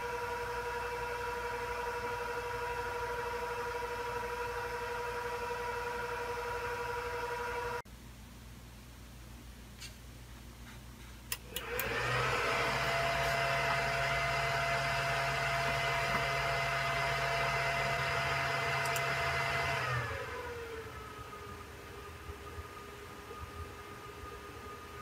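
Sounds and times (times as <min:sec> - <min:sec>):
server fans whooshing and whining: 0:11.3 - 0:25.0.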